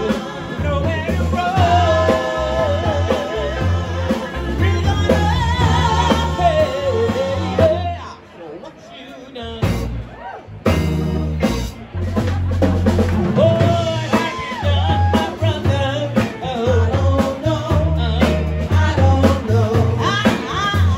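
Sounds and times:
drum kit: 0.0 - 8.0, 9.6 - 20.9
women singing: 0.0 - 8.1, 13.6 - 20.9
deep bass line: 0.0 - 8.2, 9.5 - 20.9
electric guitar: 9.6 - 20.9.

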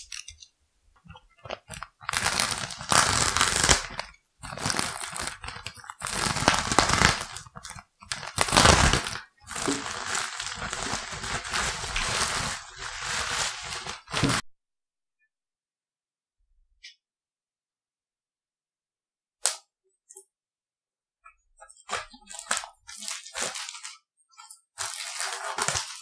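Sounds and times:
thin plastic crinkling: 1.1 - 14.4, 21.6 - 26.0.

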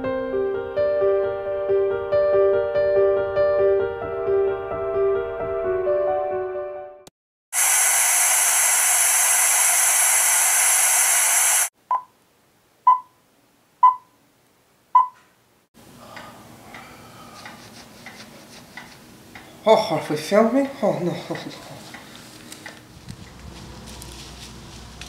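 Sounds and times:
piano tune: 0.0 - 7.1
loud static hiss: 7.6 - 11.7
short countdown beeps: 11.9 - 12.1, 12.9 - 13.1, 13.8 - 14.1, 15.0 - 15.2.

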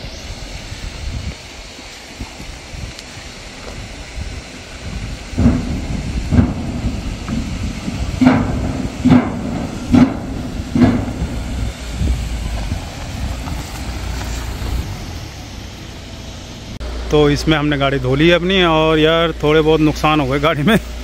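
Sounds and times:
car tyres and engine rumble: 0.0 - 21.0
metal bridge deck clanking: 4.8 - 14.1.

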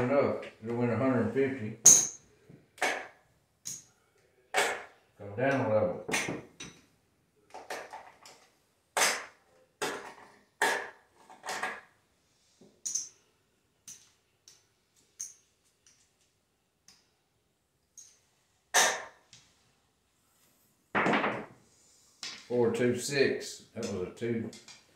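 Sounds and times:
casino chips clacking: 12.8 - 13.2.

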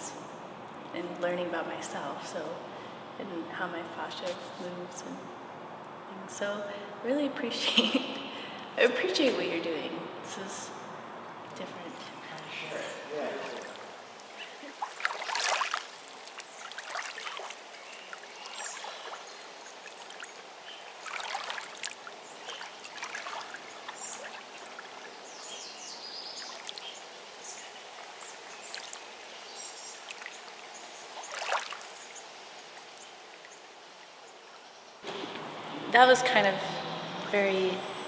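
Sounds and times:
small waves lapping on shore: 11.9 - 34.5.

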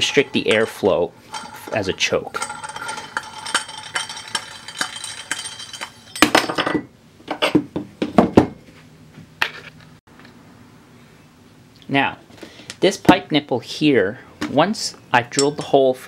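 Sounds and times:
loud metal clatter: 0.0 - 6.8
metal clicking and clinking: 0.0 - 6.8
metal parts knocking on bench: 0.0 - 8.5.

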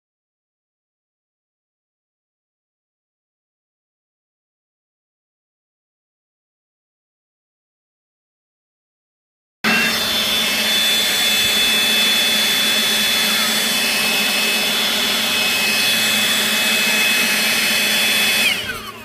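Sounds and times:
leaf blower running: 9.7 - 19.0.

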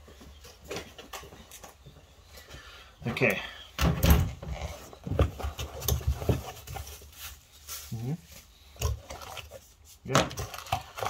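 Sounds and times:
cardboard scraping and knocking: 4.2 - 7.2.

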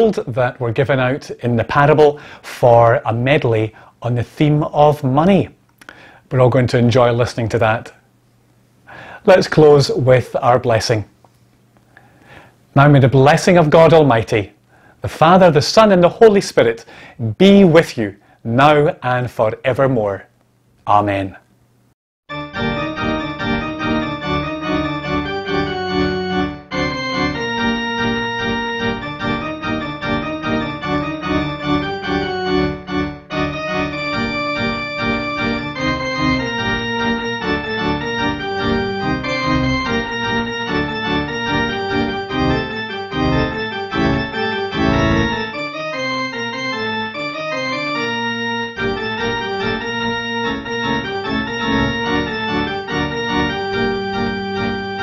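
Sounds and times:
organ playing full chords: 0.0 - 2.4, 22.3 - 55.0.

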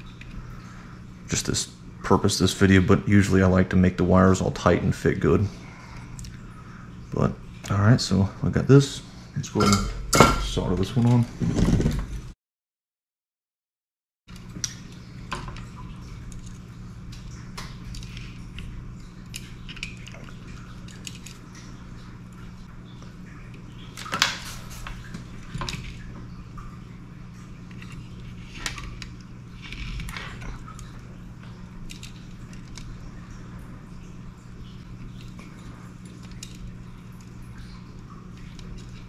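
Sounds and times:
steady low hum: 0.0 - 12.4.

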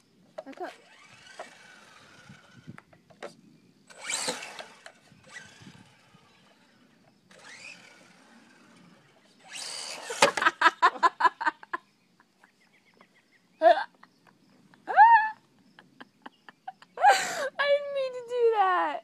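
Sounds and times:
toy car motor whining: 0.4 - 10.8
rapid motor pulses: 0.5 - 10.7.

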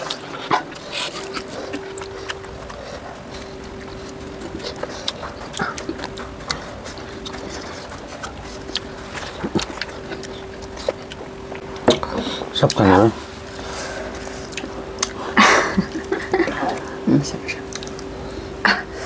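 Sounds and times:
chewing smacks: 0.0 - 13.0, 14.1 - 18.1
faint steady hum: 0.0 - 19.0.

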